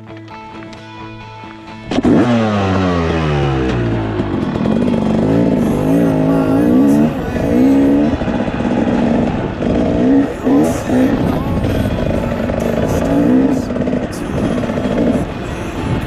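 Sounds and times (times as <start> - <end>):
dirt bike engine revving: 1.8 - 16.0.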